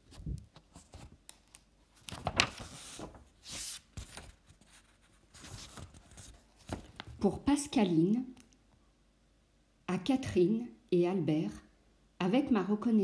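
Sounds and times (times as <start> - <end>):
book pages rustling: 0.0 - 7.3.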